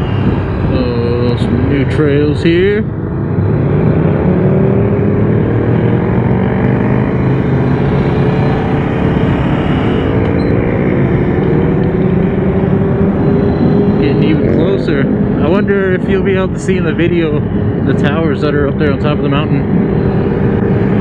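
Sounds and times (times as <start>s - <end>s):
motorcycle engine accelerating: 0.0s - 21.0s
wind and road noise: 0.0s - 21.0s.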